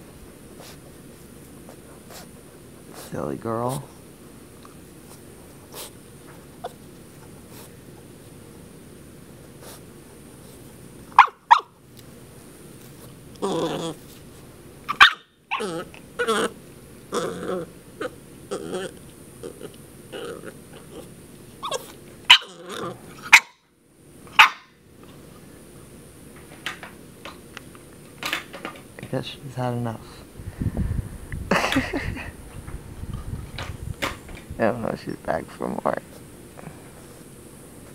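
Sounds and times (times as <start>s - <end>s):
puppy barking and growling: 11.1s - 11.8s, 13.4s - 14.2s, 14.8s - 23.6s, 24.3s - 24.8s.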